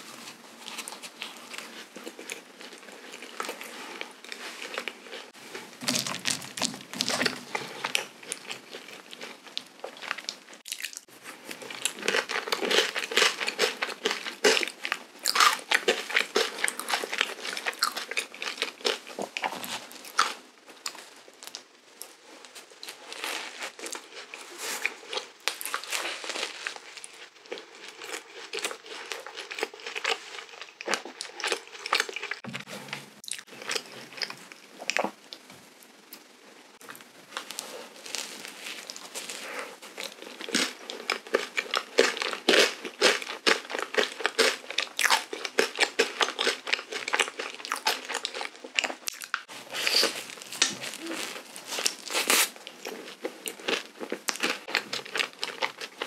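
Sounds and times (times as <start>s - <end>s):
wet chewing and smacking: 23.8s - 35.4s, 39.9s - 56.0s
pastry rustling: 36.5s - 41.6s.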